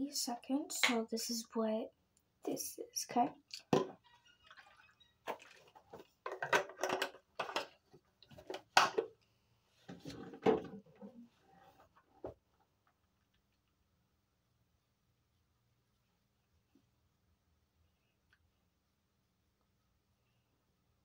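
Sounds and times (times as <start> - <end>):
plastic bottle clicks and knocks: 3.5 - 4.0, 5.3 - 7.7, 8.4 - 9.1.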